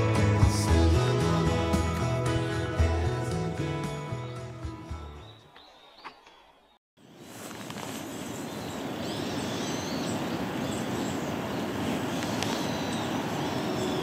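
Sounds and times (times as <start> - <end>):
short bird calls: 5.2 - 14.0.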